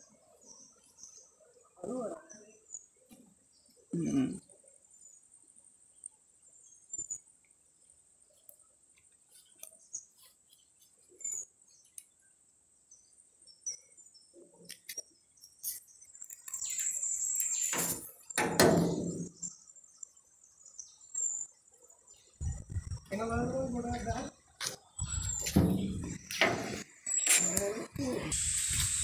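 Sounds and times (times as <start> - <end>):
bird chirps: 12.9 - 29.0
high-pitched insect drone: 22.3 - 29.0.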